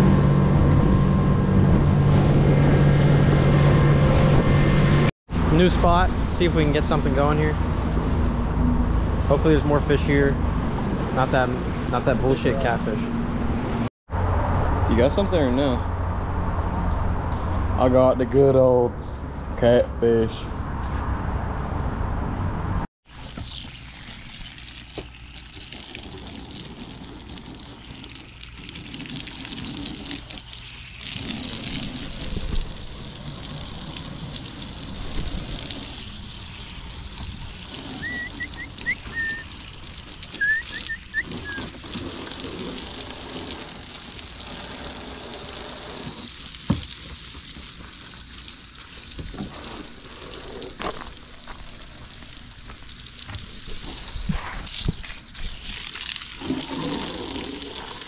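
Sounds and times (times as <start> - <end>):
hose spraying water: 23.1 - 58.0
water splashing onto grass: 23.1 - 58.0.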